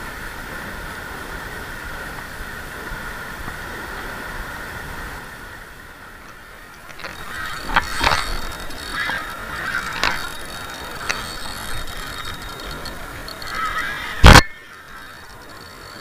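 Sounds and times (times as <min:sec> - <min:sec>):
fishing reel gear whirring: 0:06.6 - 0:16.0
fishing reel clicks: 0:06.8 - 0:16.0.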